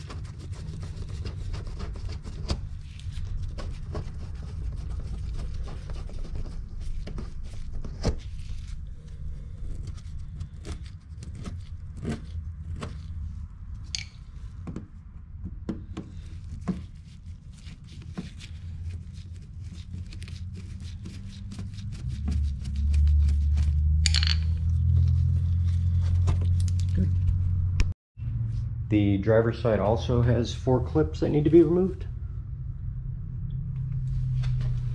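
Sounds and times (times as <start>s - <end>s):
loud low rumble: 24.5s - 34.9s.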